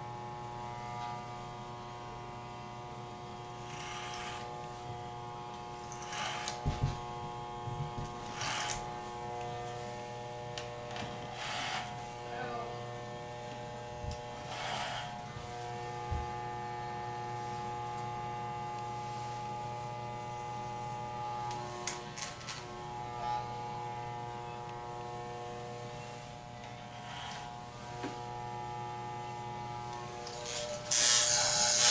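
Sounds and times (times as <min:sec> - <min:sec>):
electric hair clippers buzzing: 0:00.0 - 0:31.9
clippers rasping through hair: 0:02.3 - 0:31.9.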